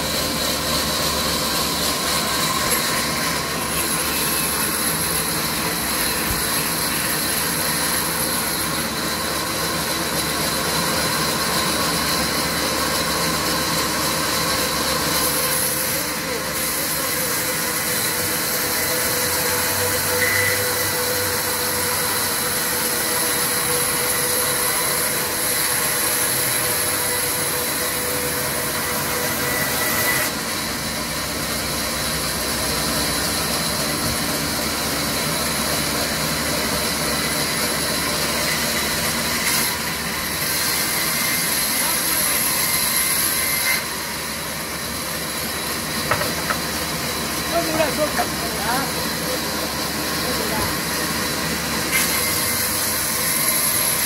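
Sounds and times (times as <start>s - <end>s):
band saw cutting log: 0.0s - 54.0s.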